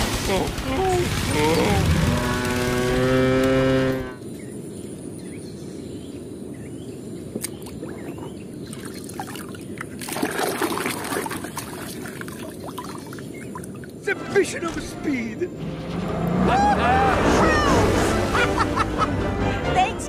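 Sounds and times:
cartoon tractor mooing: 1.1s - 4.2s, 15.9s - 18.3s
muddy water sloshing: 7.4s - 14.1s.

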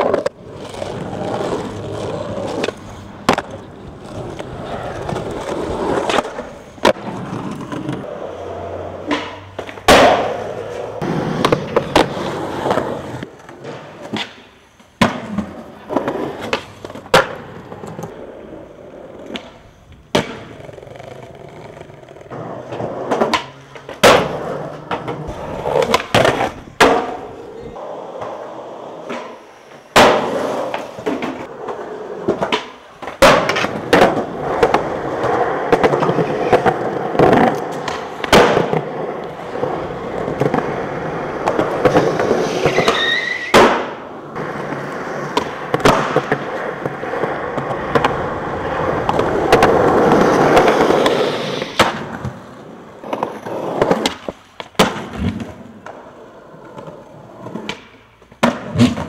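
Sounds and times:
skateboard landing slaps: 0.0s - 8.1s, 9.0s - 18.2s, 19.2s - 21.1s, 22.2s - 27.5s, 29.0s - 56.0s, 56.7s - 59.0s
skateboard wheels rolling on concrete: 0.0s - 59.0s
skateboard tail pops: 1.7s - 3.7s, 4.3s - 8.1s, 9.0s - 18.2s, 19.2s - 20.7s, 22.2s - 27.4s, 29.0s - 56.0s, 56.8s - 59.0s
short high squeal: 42.7s - 43.5s.

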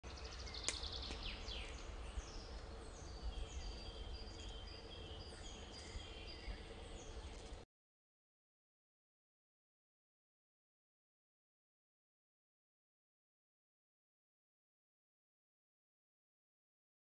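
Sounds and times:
small birds chirping: 0.0s - 7.7s
low steady rumble: 0.1s - 7.6s.

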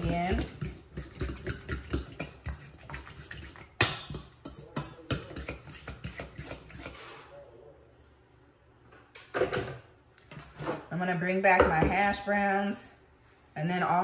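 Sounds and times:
spoon stirring in metal bowl: 0.0s - 7.2s.

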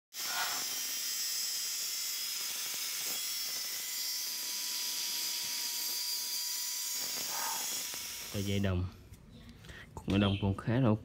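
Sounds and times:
angle grinder cutting steel: 0.1s - 8.7s.

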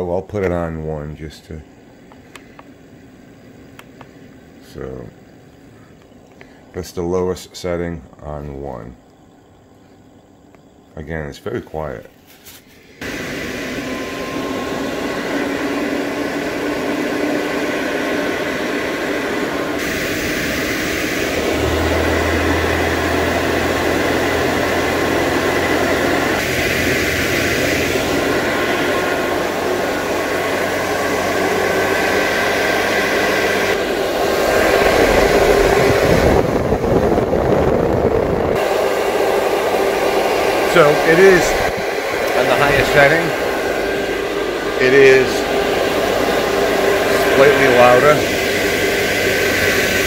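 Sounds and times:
duct fan rushing air: 12.4s - 50.0s.

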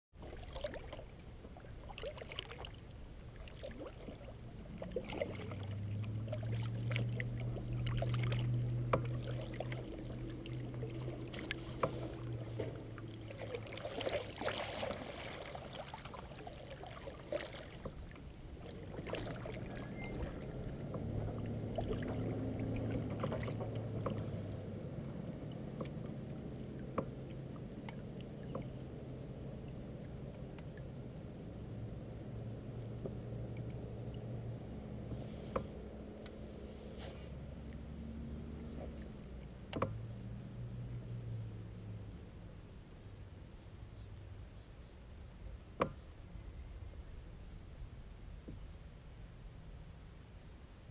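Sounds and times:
paddle stroking through water: 0.1s - 28.9s
water splashes and drips: 0.1s - 31.0s, 32.4s - 36.4s
low hum: 0.2s - 50.9s.

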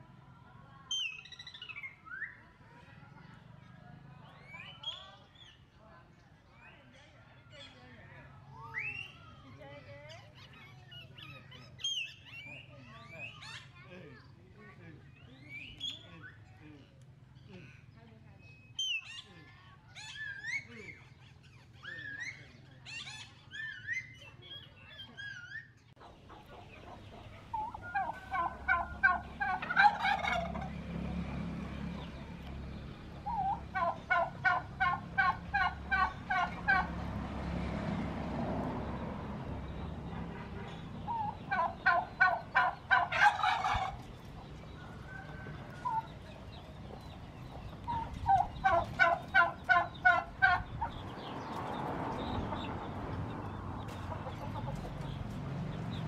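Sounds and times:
turkey gobbling: 25.2s - 30.9s, 33.1s - 37.0s, 41.0s - 51.0s, 53.9s - 55.1s.

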